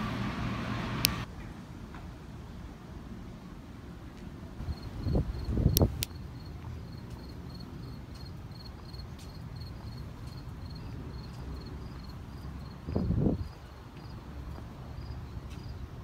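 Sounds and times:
insect chirping: 4.6s - 15.8s.

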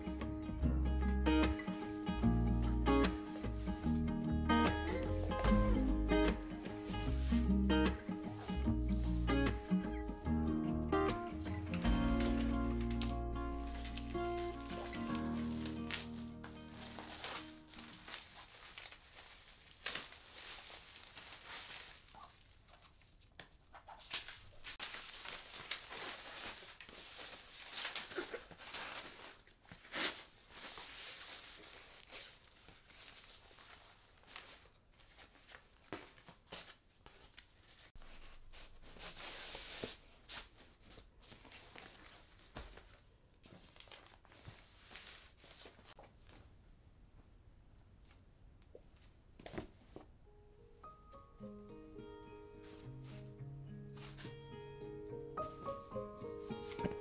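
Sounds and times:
fabric box rustling: 11.8s - 22.3s
plastic packaging crinkling: 12.0s - 37.9s.

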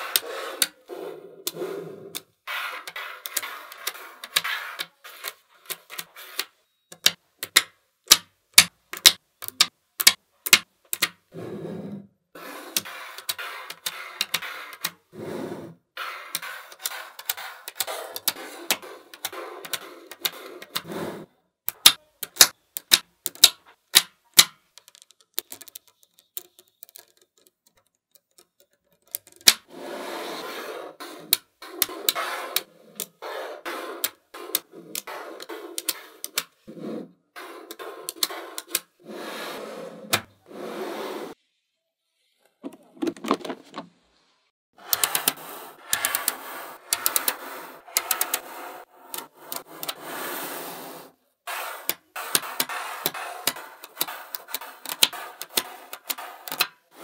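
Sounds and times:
magnet balls clicking together: 1.4s - 11.2s, 21.7s - 29.6s, 44.9s - 48.5s, 51.9s - 56.8s
magnet balls rattling on tabletop: 24.4s - 27.6s.

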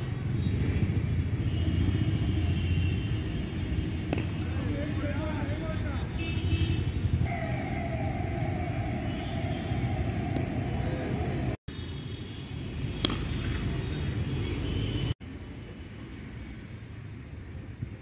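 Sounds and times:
low traffic rumble: 0.0s - 18.0s
cricket bat hitting ball: 4.0s - 4.5s, 13.0s - 13.8s.

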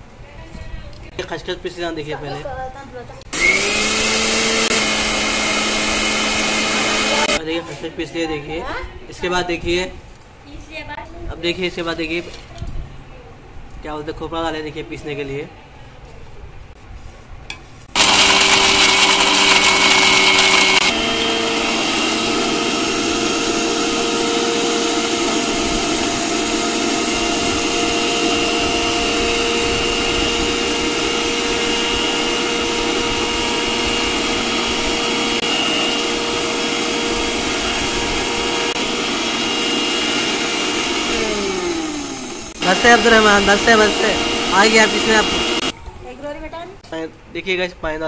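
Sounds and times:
mixer grinder grinding: 3.3s - 7.4s, 17.9s - 45.7s.

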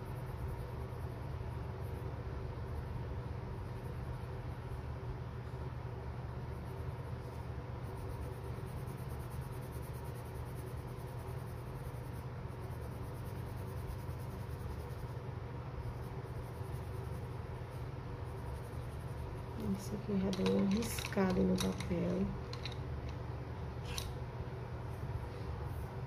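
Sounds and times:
pencil scratching on paper: 6.5s - 15.2s, 15.8s - 21.8s
low hum: 10.7s - 26.0s.

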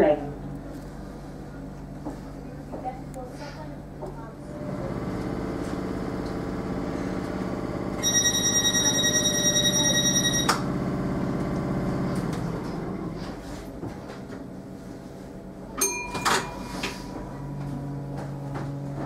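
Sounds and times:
train door warning tone: 8.0s - 10.7s
short tone with clicks: 9.9s - 10.6s.

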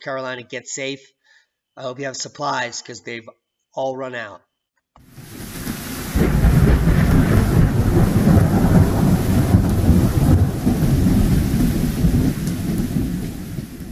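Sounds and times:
steady rain hiss: 5.0s - 13.9s
rolling thunder: 5.2s - 13.9s.

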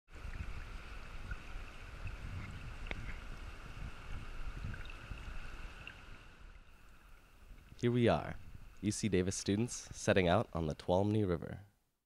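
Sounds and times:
wind rumble on microphone: 0.1s - 6.6s, 7.5s - 8.9s.

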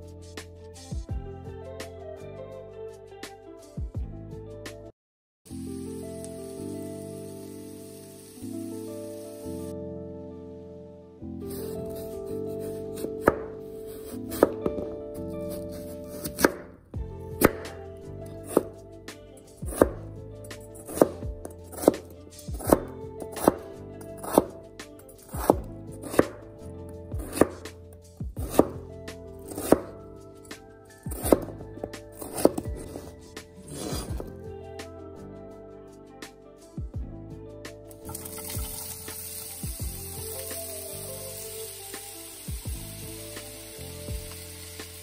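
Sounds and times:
knife chopping potato on board: 13.0s - 15.0s, 16.1s - 16.6s, 17.4s - 17.8s, 18.5s - 18.7s, 19.7s - 20.0s, 20.8s - 21.2s, 21.8s - 24.6s, 25.3s - 26.4s, 27.2s - 27.6s, 28.4s - 28.8s, 29.5s - 29.9s, 31.1s - 33.0s, 33.6s - 34.3s.

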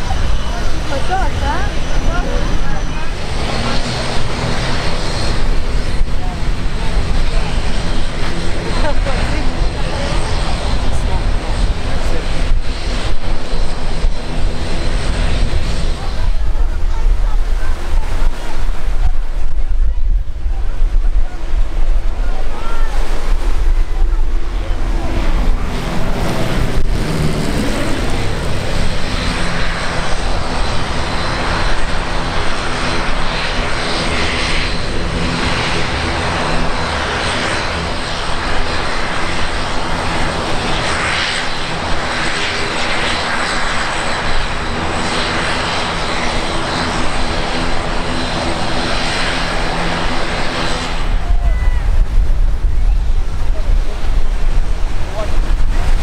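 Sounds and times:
aircraft engines passing: 0.0s - 56.0s.

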